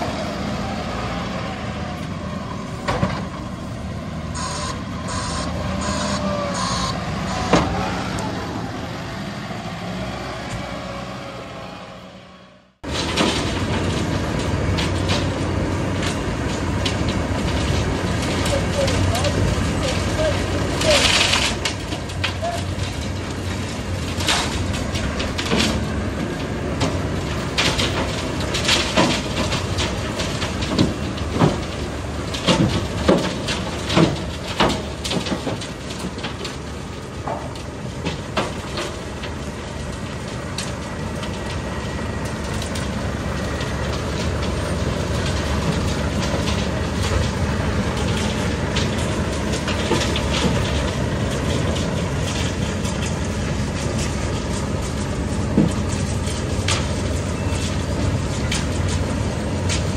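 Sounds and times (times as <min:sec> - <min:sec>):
diesel truck engine running: 0:00.0 - 0:59.9
clanks and knocks: 0:02.8 - 0:03.4, 0:12.8 - 0:41.7, 0:42.4 - 0:59.9.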